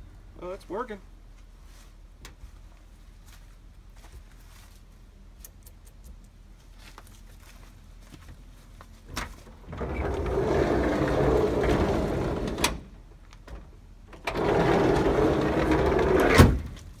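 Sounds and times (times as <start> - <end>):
sliding door rolling on track: 9.6 - 13.0, 14.1 - 16.6
sliding door slamming shut: 9.6 - 16.8.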